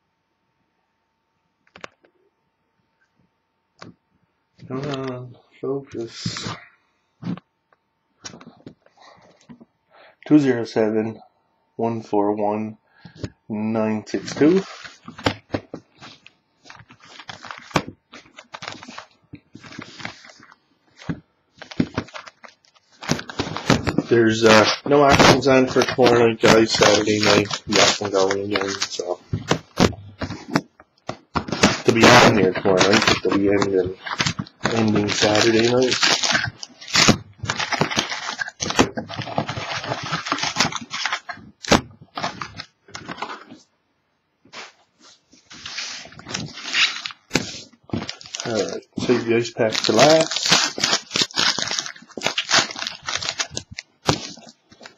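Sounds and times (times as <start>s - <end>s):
card box crinkling and rustling: 14.2s - 43.6s, 45.5s - 54.9s.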